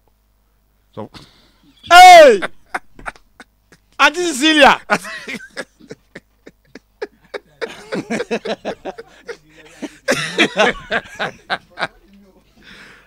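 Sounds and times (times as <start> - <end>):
person laughing: 1.9 - 4.0, 4.9 - 12.0.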